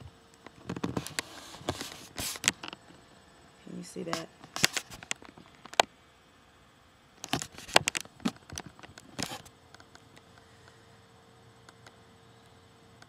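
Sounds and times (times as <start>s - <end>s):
faint steady hum: 0.0s - 13.0s
camera handling knocks and rubbing: 0.6s - 2.8s, 7.2s - 9.4s.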